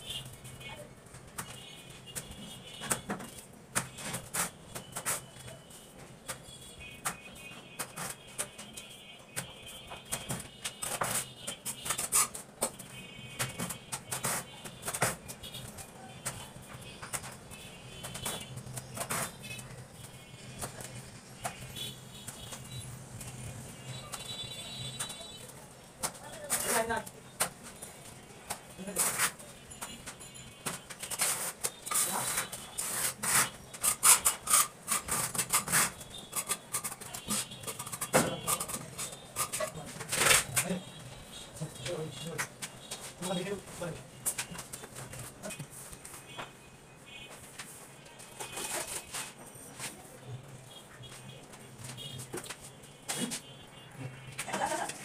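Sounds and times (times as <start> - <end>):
hand tool scraping plastic frame: 18.0 - 19.7, 30.7 - 40.8.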